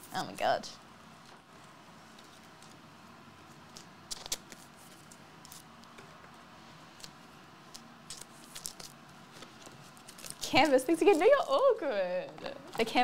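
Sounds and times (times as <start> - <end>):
cards clicking and rustling: 3.7 - 5.6.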